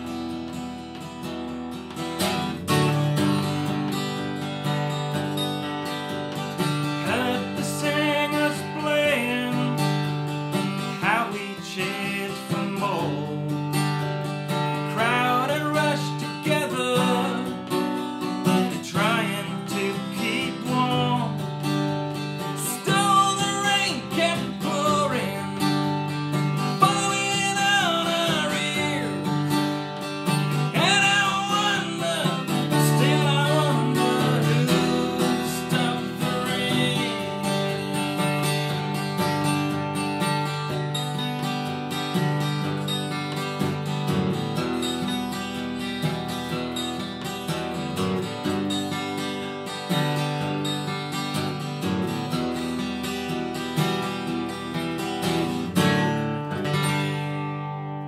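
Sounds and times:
acoustic guitar strumming: 0.0s - 58.0s
man singing: 7.0s - 10.2s, 10.8s - 13.9s, 14.7s - 17.9s, 18.5s - 21.8s, 22.4s - 38.1s.

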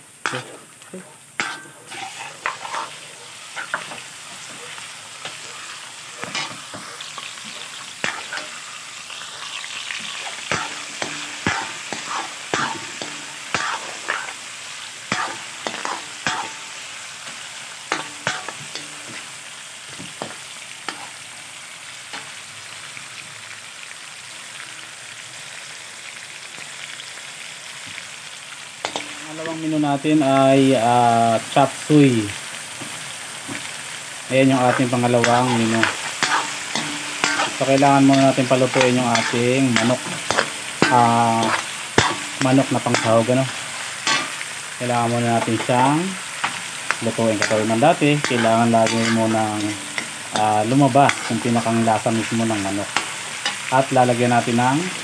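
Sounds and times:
chicken sizzling in oil: 0.0s - 55.0s
metal spatula scraping wok: 0.2s - 19.5s, 20.2s - 21.3s, 28.8s - 29.6s, 34.5s - 55.0s.

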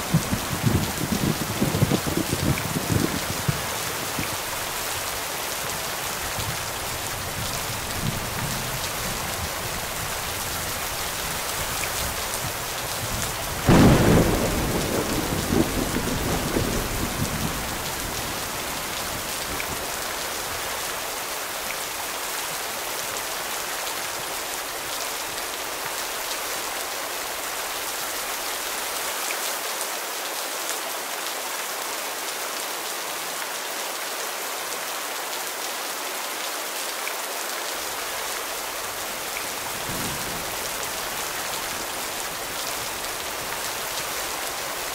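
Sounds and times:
steady rain falling: 0.0s - 44.9s
thunder clap rumbling: 13.6s - 19.2s.

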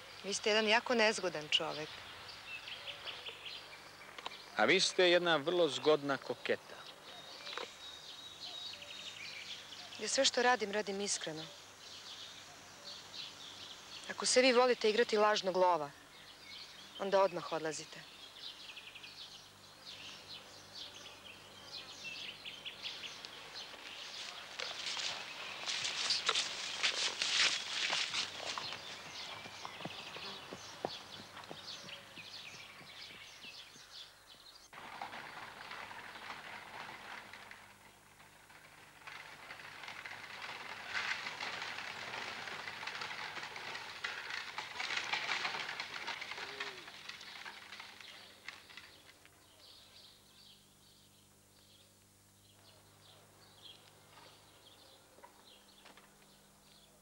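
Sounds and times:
birds chirping: 0.0s - 37.4s
carriage wheels and hooves on gravel: 0.0s - 51.0s, 52.4s - 56.9s
horse walking on grass: 21.8s - 34.9s.

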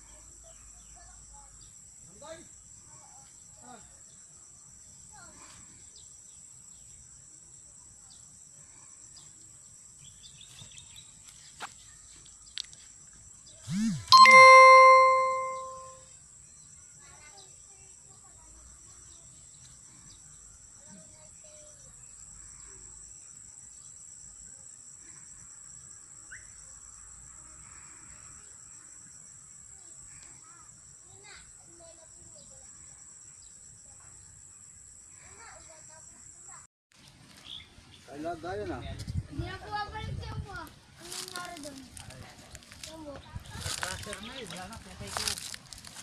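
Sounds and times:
bell-like ding: 14.1s - 16.0s
insects droning: 16.1s - 36.6s, 39.5s - 46.0s.

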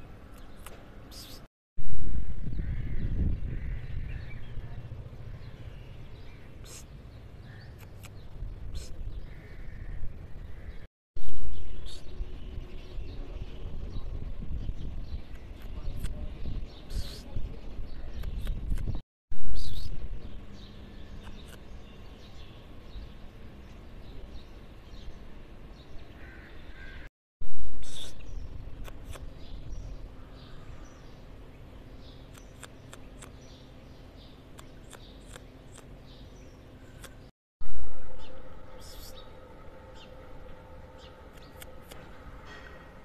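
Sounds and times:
low outdoor rumble: 1.8s - 12.6s, 28.3s - 43.0s
faint bird chirps: 19.4s - 20.1s, 36.9s - 40.1s
crow cawing: 26.2s - 27.1s
steady low hum: 27.4s - 43.0s.

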